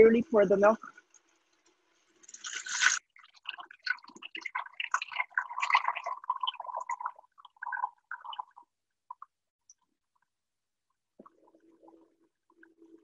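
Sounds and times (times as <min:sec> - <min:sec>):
milk pouring into container: 0:02.0 - 0:09.3.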